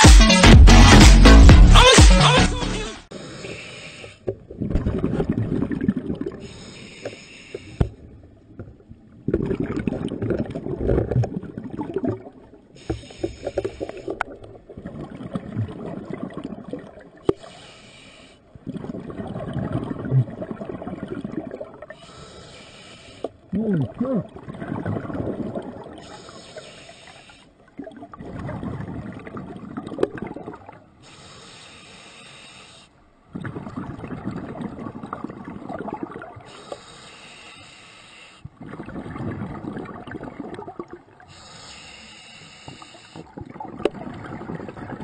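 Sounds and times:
diver inhaling through regulator: 3.1 - 4.3, 6.3 - 7.9, 12.8 - 14.2, 17.3 - 18.5, 21.9 - 23.4, 26.0 - 27.6, 31.0 - 33.0, 36.4 - 38.5, 41.2 - 43.4
exhaled bubbles rushing: 4.4 - 6.6, 9.2 - 12.7, 13.6 - 17.3, 18.6 - 21.9, 23.5 - 26.0, 27.7 - 30.8, 33.3 - 36.5, 38.6 - 41.2, 43.3 - 45.0.

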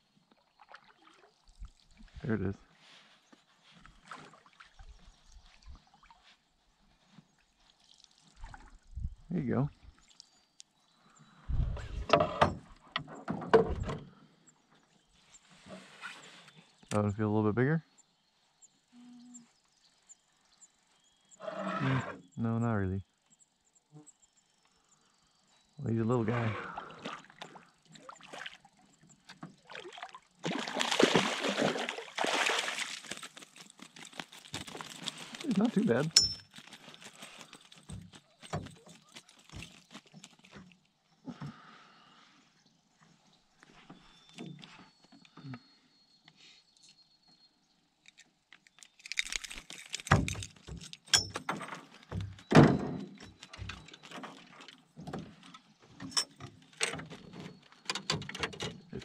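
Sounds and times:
knocks and clatter in a canoe: 11.7 - 14.1, 27.0 - 41.6, 49.1 - 59.0
water splashing against canoe: 26.8 - 37.0.

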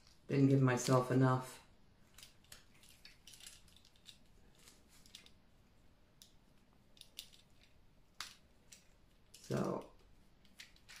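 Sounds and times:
tape crackling as it is wrapped: 2.0 - 5.6, 6.2 - 11.0.

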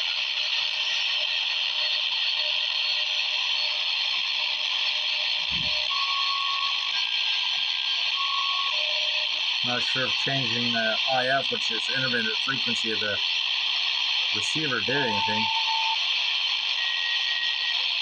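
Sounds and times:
radio static hiss: 5.4 - 5.9, 9.6 - 13.2, 14.4 - 16.0
faint whistle tones: 14.9 - 16.0, 16.8 - 17.8.

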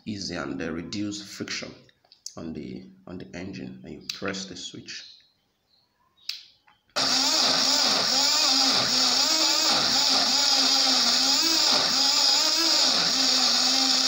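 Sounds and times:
blender motor running: 7.0 - 14.0.

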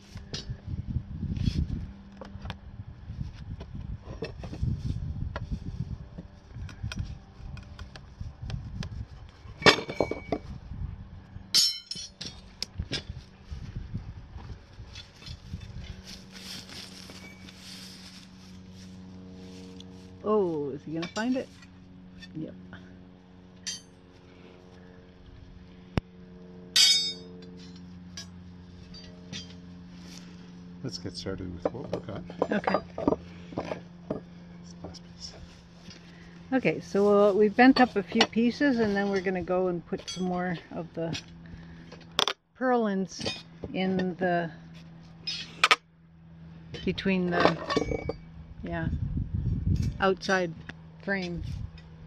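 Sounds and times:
steady low hum: 0.0 - 52.0
metallic clang ringing: 11.5 - 12.2, 26.8 - 27.3
rebar knocking and clinking: 11.6 - 12.4, 26.8 - 27.3
loud metallic clank ringing: 26.8 - 27.3.

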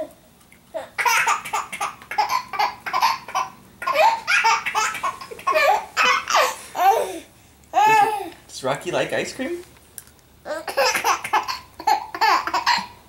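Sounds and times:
baby laughing: 0.8 - 7.2, 7.8 - 8.4, 10.5 - 13.0.

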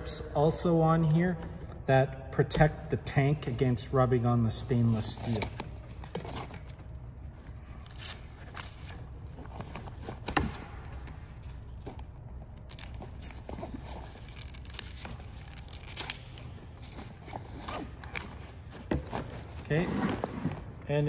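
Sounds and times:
nylon strap rustling through buckle: 5.0 - 20.7.

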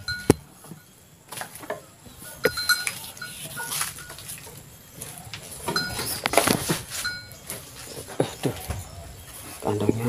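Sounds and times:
cow stepping with knocks: 0.0 - 9.6
short metallic clinks: 2.3 - 4.3.

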